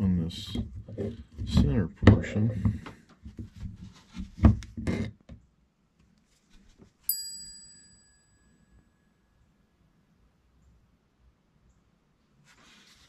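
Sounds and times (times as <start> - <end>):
bright metallic ding: 7.1 - 9.1.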